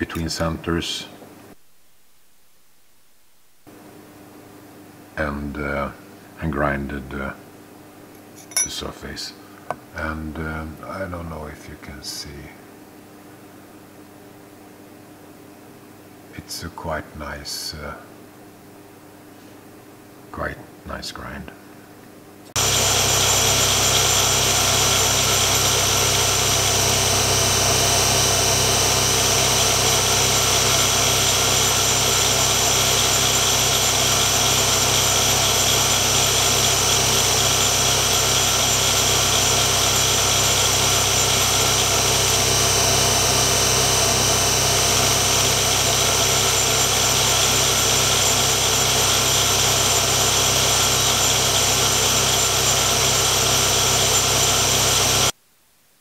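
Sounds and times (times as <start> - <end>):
grinding machine running: 22.6 - 55.3.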